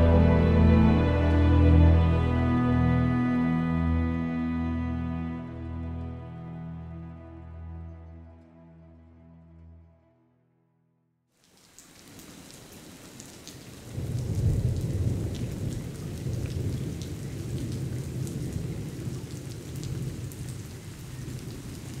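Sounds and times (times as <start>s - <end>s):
steady rain: 11.4s - 22.0s
thunder rumbling: 13.9s - 22.0s.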